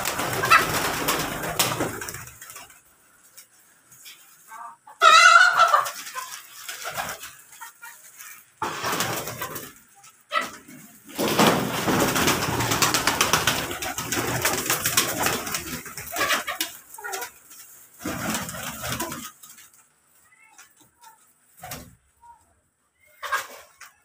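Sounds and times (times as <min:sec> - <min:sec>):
pigeon wings fluttering: 0:00.0 - 0:02.8, 0:06.5 - 0:07.4, 0:08.2 - 0:09.8, 0:11.1 - 0:17.4, 0:18.0 - 0:19.7.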